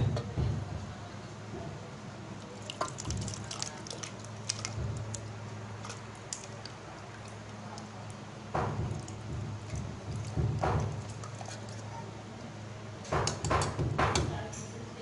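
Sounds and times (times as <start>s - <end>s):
fruit pulp dripping and plopping: 2.4s - 12.1s.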